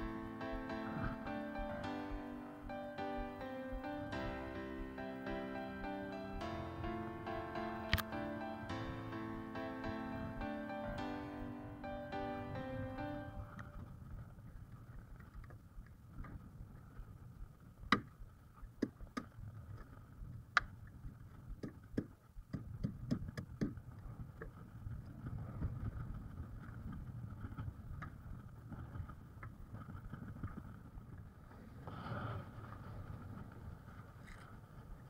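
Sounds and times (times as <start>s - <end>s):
wind rumbling on microphone: 0.0s - 35.0s
sharp knocks and clicks: 21.6s - 23.8s.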